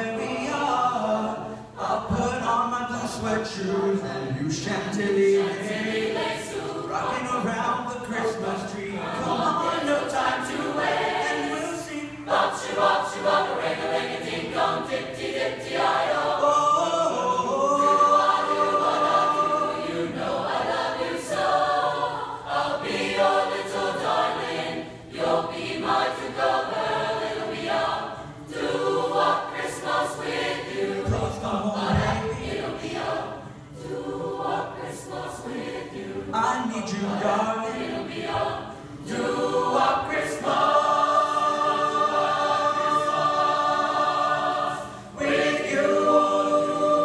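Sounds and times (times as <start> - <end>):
mixed choir singing: 0.0 - 47.0.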